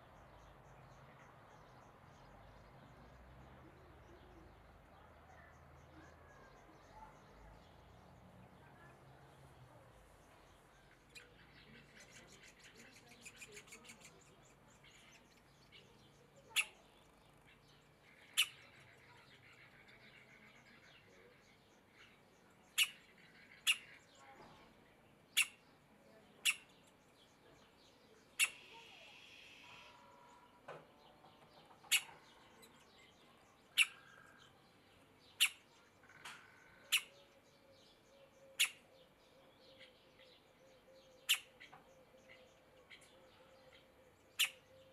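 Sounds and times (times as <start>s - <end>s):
faint songbirds: 0.0s - 44.9s
woodpecker nestling calling: 10.6s - 20.9s, 21.7s - 24.2s, 25.3s - 25.7s, 26.4s - 27.1s, 28.3s - 30.6s, 31.3s - 34.6s, 35.2s - 44.9s.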